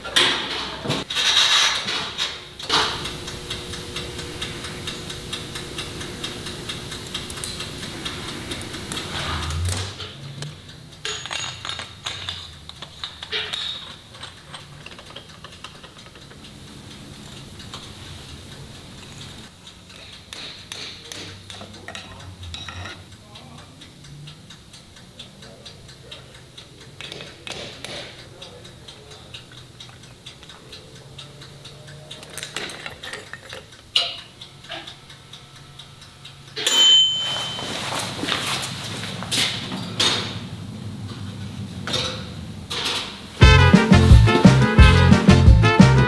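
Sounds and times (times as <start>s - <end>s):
tools and metal parts clattering: 0.0s - 3.1s, 8.6s - 16.5s, 19.9s - 23.0s, 32.2s - 34.9s, 36.6s - 40.4s
swing music: 43.4s - 46.0s.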